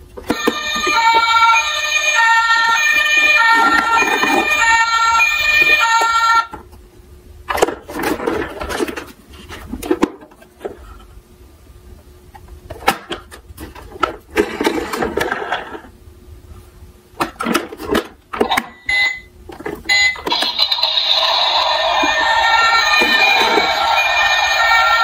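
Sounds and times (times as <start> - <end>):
toy electronic siren: 0.3 - 6.5, 19.9 - 25.0.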